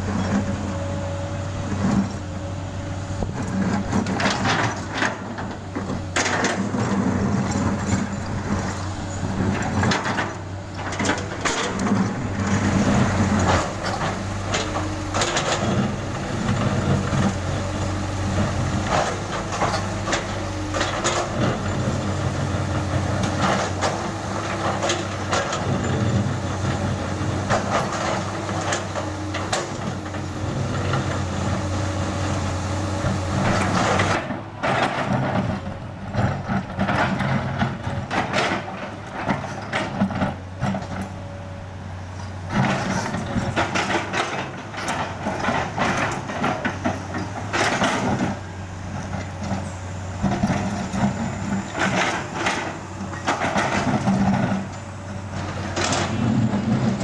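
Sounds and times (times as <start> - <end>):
excavator diesel engine running: 0.0 - 57.0
bucket scraping and clattering asphalt: 3.4 - 32.1.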